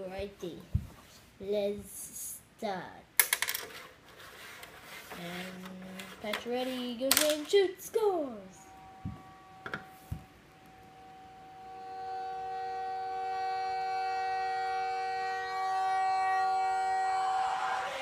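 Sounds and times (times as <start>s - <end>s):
goal horn chord: 8.6s - 18.0s.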